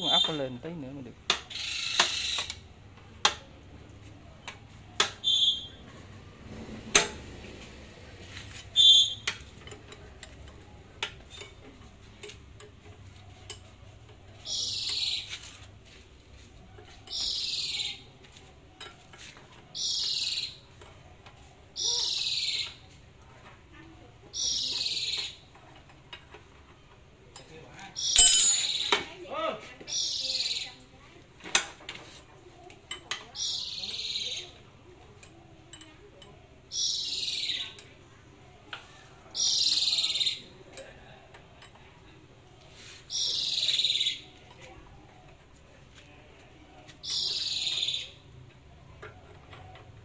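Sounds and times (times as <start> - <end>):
steel tools clinking on metal: 27.4 - 29.0.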